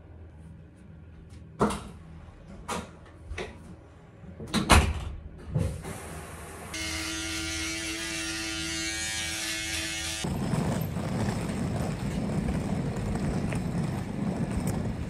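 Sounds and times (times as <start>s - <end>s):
electric shaver buzzing: 6.8s - 10.2s.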